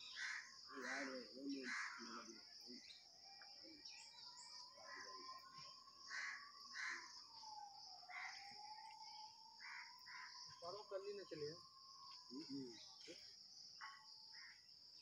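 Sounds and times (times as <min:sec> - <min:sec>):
short bird calls: 0:00.0 - 0:03.0.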